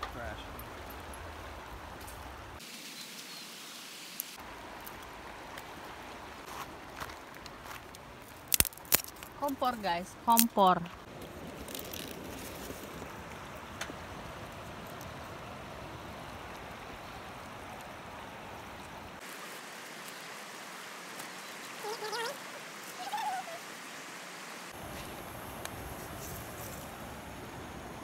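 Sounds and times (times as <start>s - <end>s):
river rushing: 0.0s - 9.8s, 11.0s - 28.0s
high wavering animal calls: 21.8s - 23.7s.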